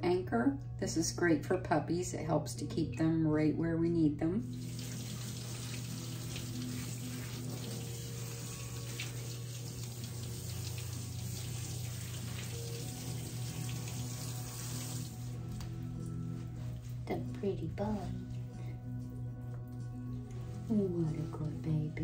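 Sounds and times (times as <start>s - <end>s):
water spraying from shower sprayer: 4.6s - 15.4s.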